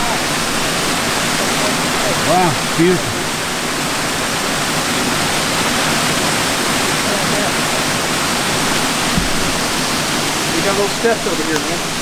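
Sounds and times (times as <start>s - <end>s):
waterfall rushing: 0.0s - 12.0s
low thump: 9.0s - 9.8s.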